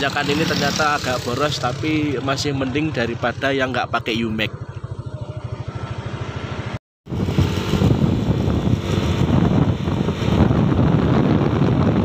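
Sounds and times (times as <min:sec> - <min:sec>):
scooter engine running: 0:00.0 - 0:12.0
wind buffeting microphone: 0:07.1 - 0:12.0.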